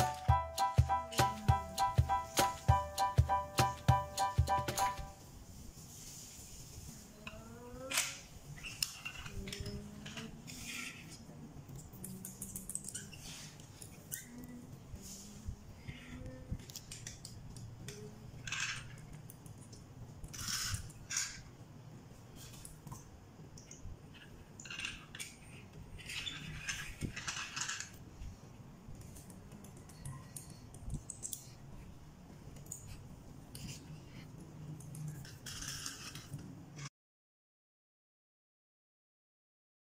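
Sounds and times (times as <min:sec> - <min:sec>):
toy car wheels clicking on tile: 0:20.2 - 0:21.5, 0:35.0 - 0:36.4
small wheels scraping on tile: 0:20.3 - 0:21.4, 0:35.2 - 0:36.4.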